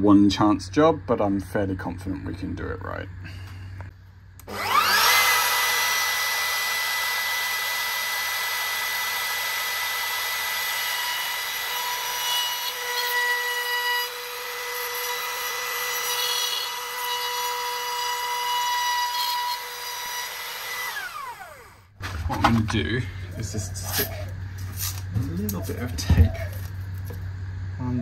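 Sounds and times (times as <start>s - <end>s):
router bit cutting wood: 4.4s - 21.9s
trim router whining: 4.4s - 22.0s.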